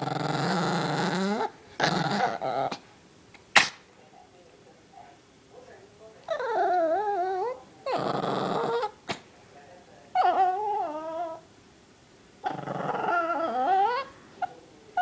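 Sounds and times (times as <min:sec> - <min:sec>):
small dog growling: 0:00.0 - 0:02.8, 0:06.3 - 0:09.2, 0:10.1 - 0:11.5, 0:12.4 - 0:15.0.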